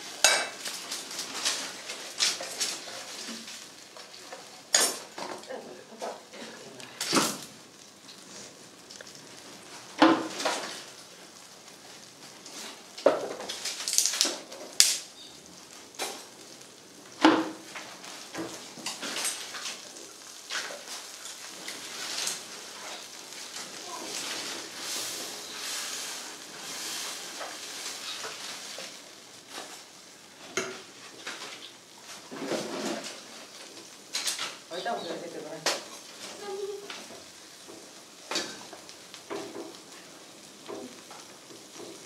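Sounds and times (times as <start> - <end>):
spices sizzling in oil: 0.0 - 42.0
firewood sticks breaking: 12.9 - 15.2.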